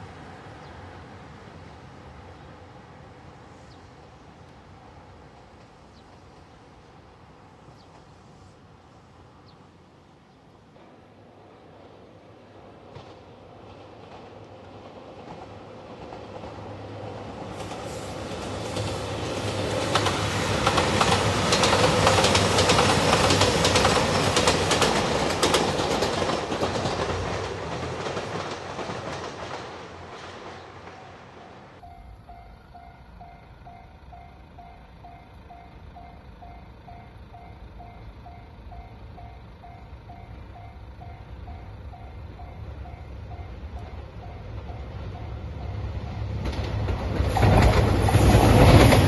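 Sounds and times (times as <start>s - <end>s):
diesel train passing: 0.0s - 49.0s
level crossing bell dinging: 31.8s - 37.1s.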